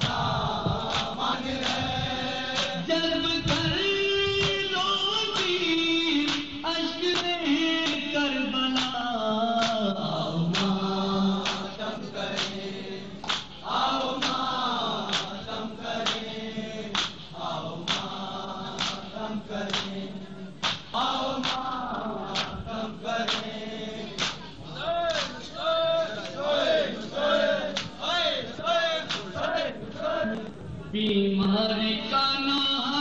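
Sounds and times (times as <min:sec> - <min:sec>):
men chanting together: 0:00.0 - 0:30.5
hand slaps on chests: 0:00.8 - 0:01.9, 0:02.5 - 0:02.8, 0:04.4 - 0:04.7, 0:05.3 - 0:05.6, 0:06.2 - 0:08.1, 0:08.8 - 0:09.0, 0:09.6 - 0:09.8, 0:10.5 - 0:10.8, 0:11.4 - 0:12.6, 0:13.2 - 0:14.4, 0:15.1 - 0:15.4, 0:16.0 - 0:16.3, 0:16.9 - 0:20.0, 0:20.6 - 0:22.6, 0:23.2 - 0:23.6, 0:24.2 - 0:24.5, 0:25.1 - 0:25.4, 0:27.7 - 0:28.0, 0:29.0 - 0:29.5.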